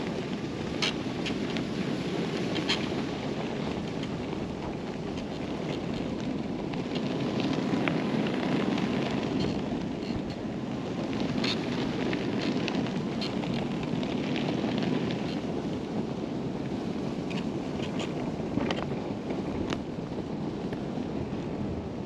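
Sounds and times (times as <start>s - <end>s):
tyres churning snow: 0.0s - 22.0s
wind buffeting microphone: 0.0s - 22.0s.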